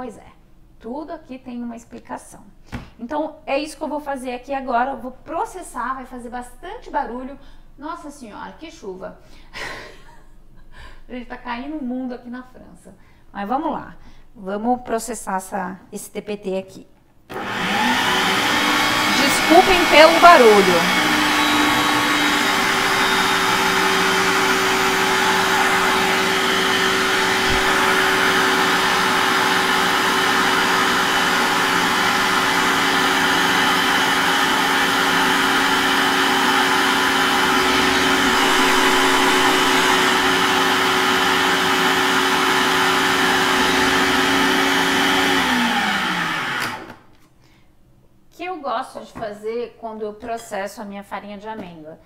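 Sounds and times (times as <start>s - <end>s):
motor spinning down: 17.3s - 42.0s
food processor grinding: 17.3s - 47.0s.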